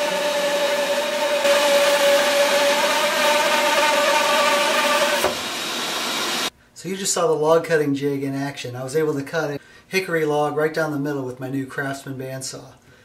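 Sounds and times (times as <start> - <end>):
bandsaw motor hum: 0.0 - 6.5
saw blade cutting log: 0.0 - 6.5.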